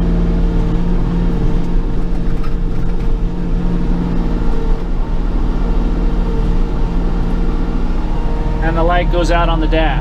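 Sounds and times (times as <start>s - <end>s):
tractor engine running: 0.0s - 10.0s.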